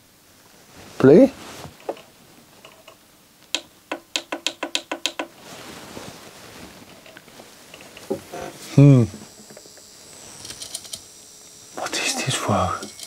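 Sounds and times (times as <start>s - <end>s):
disc drive clicking: 1.8s - 5.4s, 6.9s - 8.6s, 9.2s - 13.0s
faint whir: 5.5s - 13.0s.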